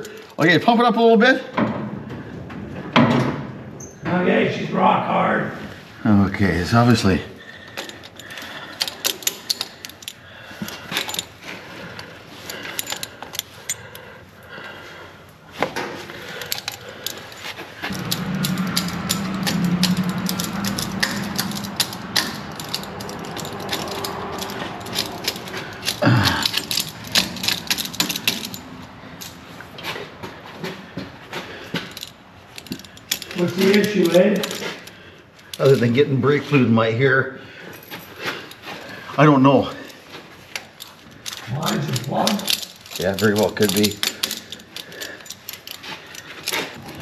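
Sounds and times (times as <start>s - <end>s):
hand tools clinking on metal: 6.8s - 14.1s, 16.2s - 30.0s, 31.4s - 36.7s, 37.6s - 47.0s
low steady hum: 17.8s - 29.6s.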